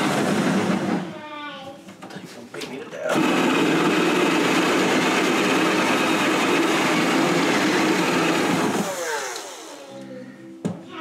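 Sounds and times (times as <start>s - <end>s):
cordless drill boring wood: 3.1s - 9.8s.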